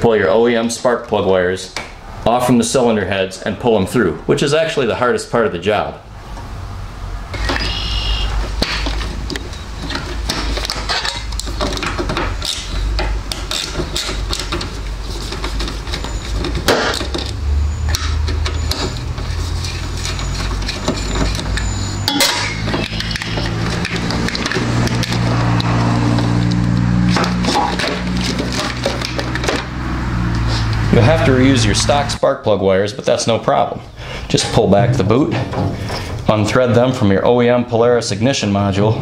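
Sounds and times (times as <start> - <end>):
low drone: 34.0 - 36.5.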